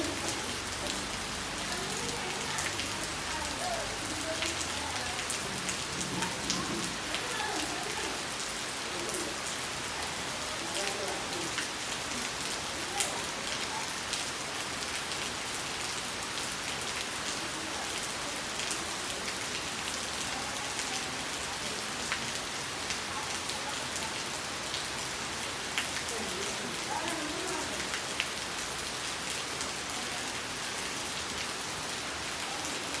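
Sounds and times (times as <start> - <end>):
steady rain on mud and leaves: 0.0 - 33.0.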